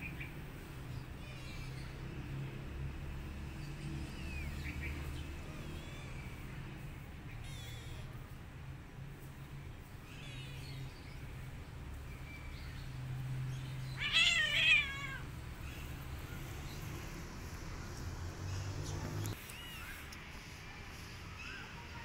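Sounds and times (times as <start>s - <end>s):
cat crying: 13.9s - 15.4s.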